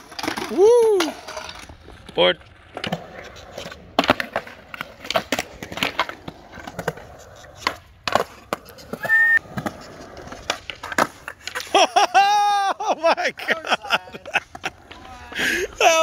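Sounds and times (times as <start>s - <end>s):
skateboard clacking on concrete: 0.0s - 11.8s, 13.4s - 16.0s
skateboard wheels rolling on concrete: 0.0s - 16.0s
brief high-pitched squeal: 9.0s - 9.4s.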